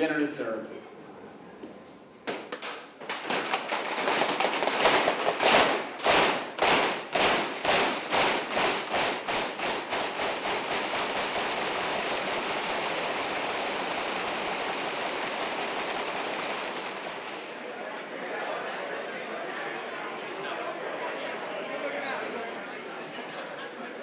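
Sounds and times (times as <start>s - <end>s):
crowd clapping in unison: 2.6s - 18.0s.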